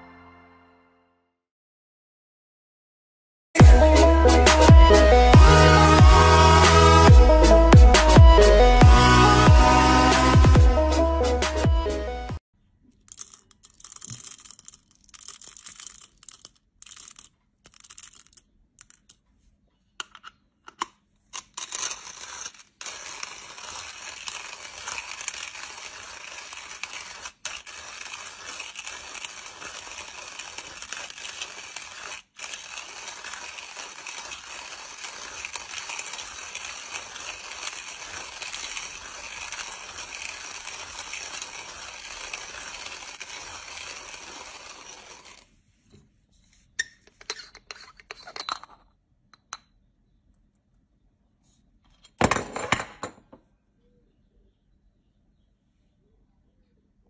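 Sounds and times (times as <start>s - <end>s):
hand-cranked coffee grinder grinding: 3.6s - 11.7s, 21.4s - 45.5s.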